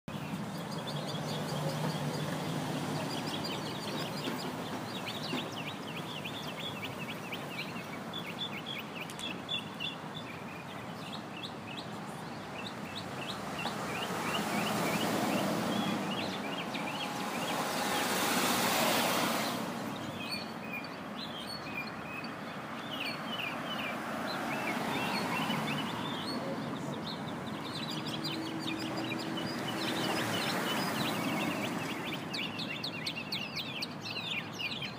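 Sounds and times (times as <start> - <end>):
mockingbird singing: 0.1 - 18.6, 19.4 - 34.9
broad rushing noise: 13.2 - 20.3.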